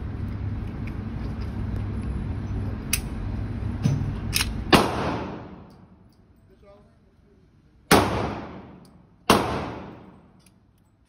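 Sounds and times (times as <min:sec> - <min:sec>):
low mechanical hum: 0:00.0 - 0:11.0
gunshots echoing: 0:04.7 - 0:05.7, 0:07.9 - 0:10.4.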